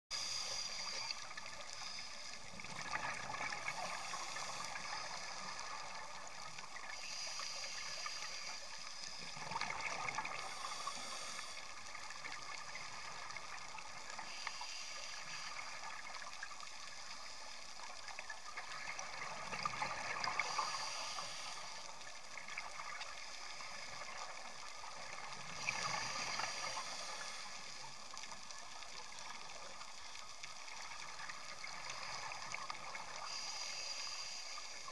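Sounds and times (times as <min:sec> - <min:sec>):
steady background hiss: 0:00.1 - 0:34.9
exhaled bubbles underwater: 0:00.9 - 0:07.0, 0:08.5 - 0:14.2, 0:17.8 - 0:33.4
diver breathing through regulator: 0:10.3 - 0:11.7, 0:20.2 - 0:21.9.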